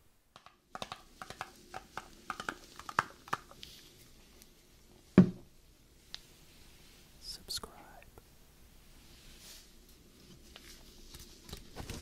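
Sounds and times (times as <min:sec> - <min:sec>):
gloved hands tapping cardboard: 0:00.3 - 0:03.6.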